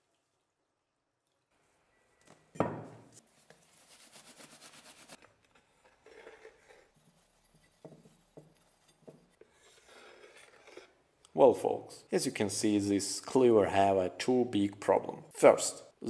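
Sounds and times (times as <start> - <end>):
towel rubbing metal blade: 3.3 - 5.2, 7.0 - 9.4.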